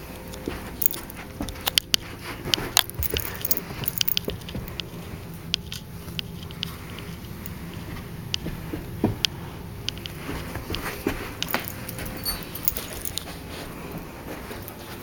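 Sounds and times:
dog collar tags jangling: 0:00.4 - 0:02.0, 0:02.7 - 0:04.9, 0:11.4 - 0:13.5.

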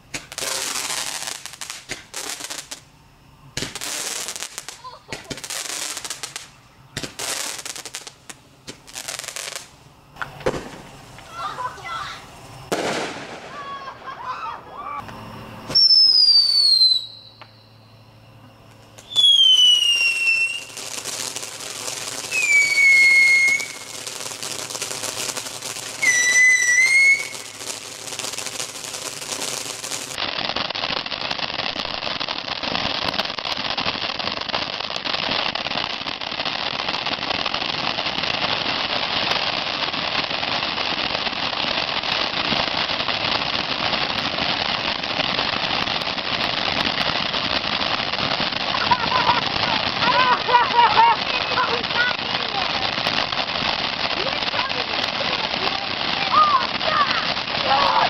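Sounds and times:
fireworks whistling: 0:00.0 - 0:58.0
fountain firework hissing: 0:00.0 - 0:58.0.

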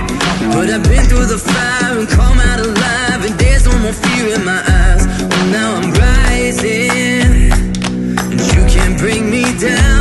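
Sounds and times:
deep bass dropping in pitch: 0:00.0 - 0:04.0
song with sung vocal: 0:00.0 - 0:10.0.

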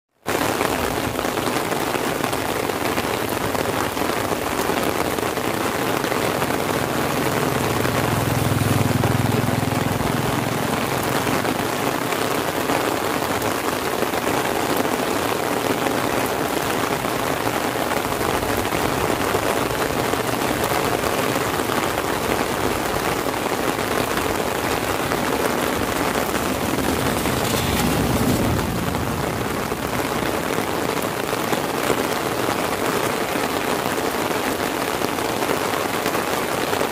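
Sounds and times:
heavy rain on umbrella and road: 0:00.1 - 0:36.9
low rumble: 0:23.9 - 0:30.9.

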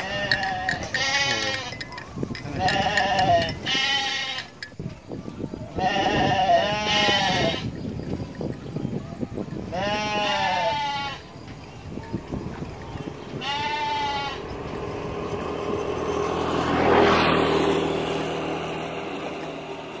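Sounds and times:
sheep bleating: 0:00.0 - 0:04.6, 0:05.8 - 0:07.7, 0:09.7 - 0:11.3, 0:13.3 - 0:14.5
road vehicle passing: 0:00.0 - 0:08.5, 0:09.4 - 0:20.0.

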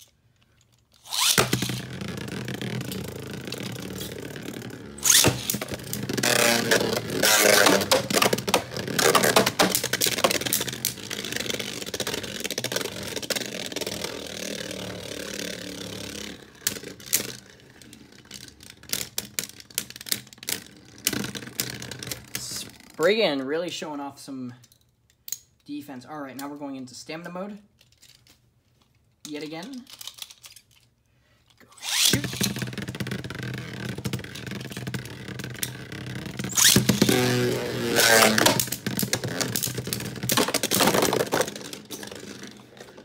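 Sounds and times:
spinning tops whirring: 0:01.0 - 0:17.4, 0:31.8 - 0:42.8.

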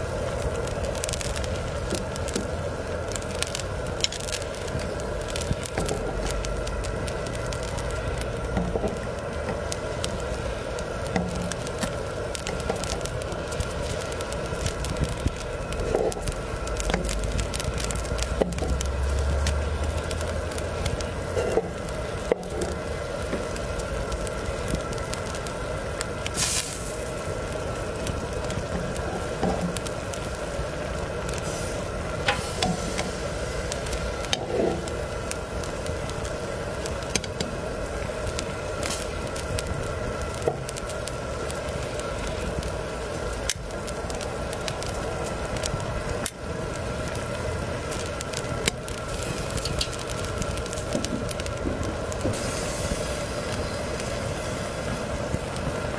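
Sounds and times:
broth boiling and bubbling: 0:00.0 - 0:55.9
fire crackling: 0:00.0 - 0:55.9.

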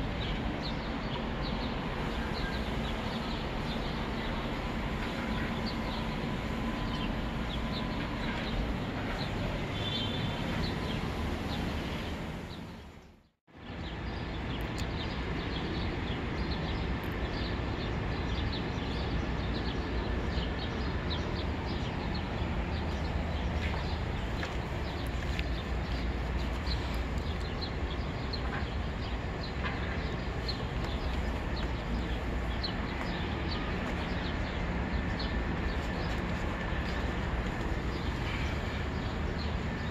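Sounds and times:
distant traffic rumble: 0:00.0 - 0:39.9
birds chirping: 0:00.2 - 0:39.9.

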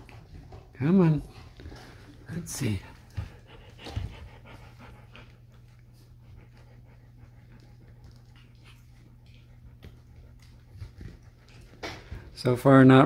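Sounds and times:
low steady hum: 0:00.0 - 0:13.0
puppies panting: 0:00.0 - 0:13.0.

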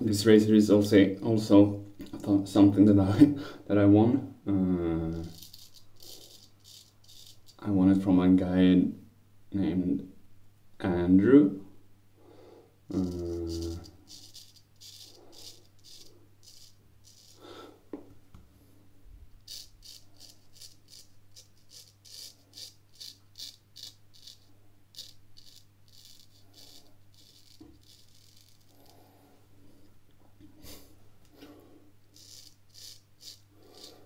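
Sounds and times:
razor scraping stubble: 0:05.0 - 0:07.7, 0:12.9 - 0:17.6, 0:19.4 - 0:29.1, 0:32.1 - 0:34.0.

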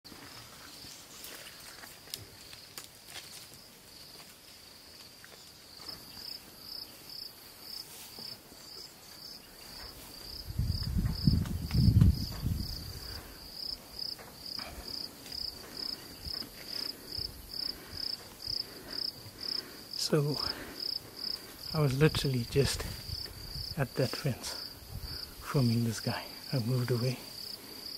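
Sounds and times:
insect chirping: 0:00.2 - 0:27.9.

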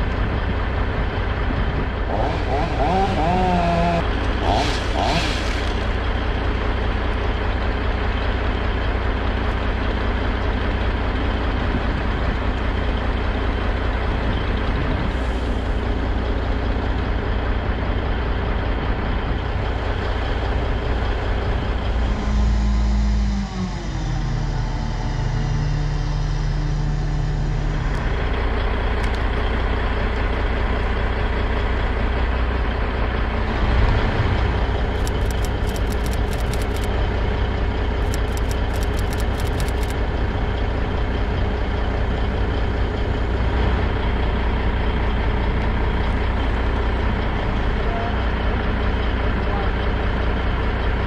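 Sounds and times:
truck engine running: 0:00.0 - 0:51.0
rapid high ticking: 0:35.0 - 0:36.9, 0:38.0 - 0:39.9.

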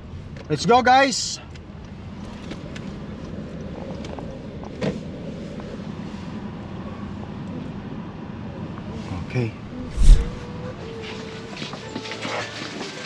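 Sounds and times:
car engine and tyre hum: 0:01.7 - 0:10.6.

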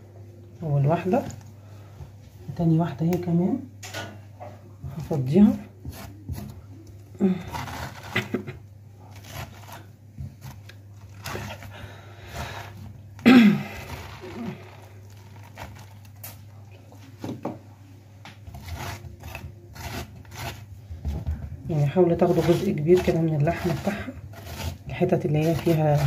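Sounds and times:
spoon scraping pumpkin: 0:04.8 - 0:16.4, 0:18.4 - 0:26.0.

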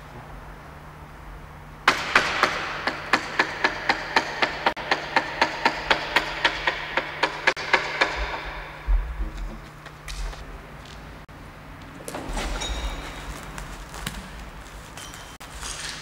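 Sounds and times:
hammer striking chisel: 0:01.9 - 0:09.6.

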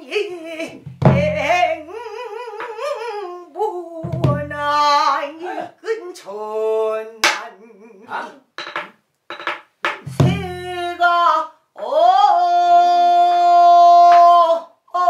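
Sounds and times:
woman singing with vibrato: 0:00.0 - 0:08.5, 0:10.0 - 0:15.0
stick striking drum: 0:08.6 - 0:10.7.

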